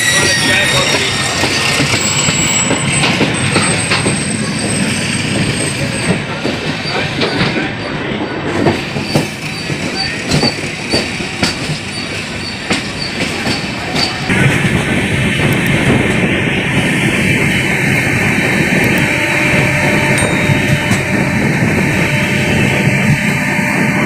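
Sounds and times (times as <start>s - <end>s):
high wheel squeal: 0.0s - 14.3s
train wheels rushing on rails: 0.0s - 24.0s.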